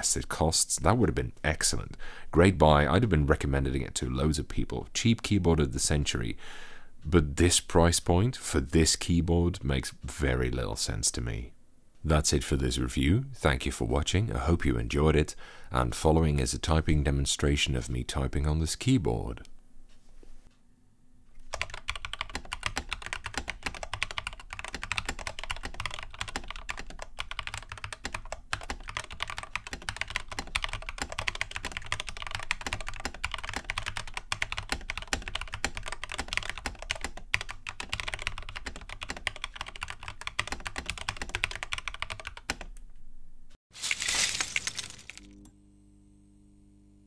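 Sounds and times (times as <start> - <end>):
mechanical keyboard typing: 21.5 - 42.8.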